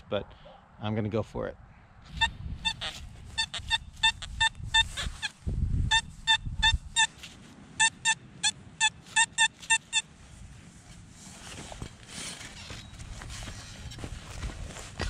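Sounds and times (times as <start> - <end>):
metal detector short beeps: 2.1 - 7.2, 7.8 - 10.1.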